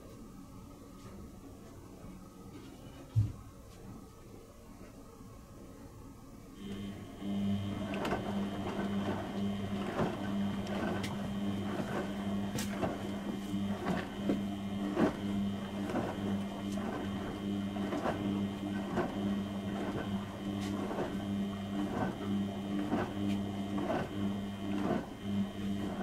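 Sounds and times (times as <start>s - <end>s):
washing machine motor hum: 4.9s - 26.0s
laundry knocking and sloshing: 7.6s - 26.0s.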